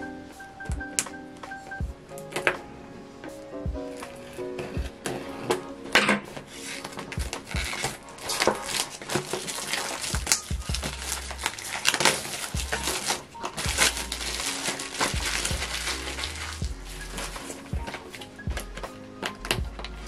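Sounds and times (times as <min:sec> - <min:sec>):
packaging crinkling and rustling: 0:06.5 - 0:20.0.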